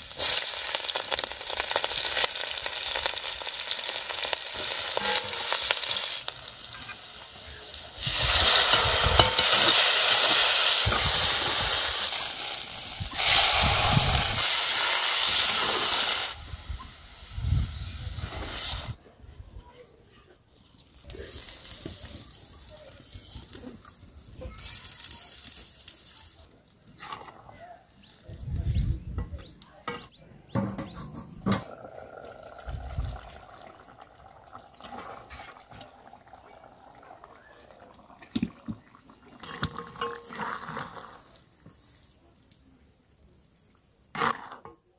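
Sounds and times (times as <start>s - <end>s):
curry sizzling in a pan: 0.0s - 19.0s.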